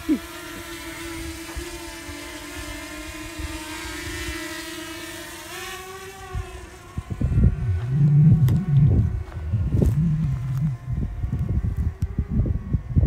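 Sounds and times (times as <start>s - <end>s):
drone propellers humming: 0.0s - 13.0s
wind gusts on microphone: 6.2s - 13.0s.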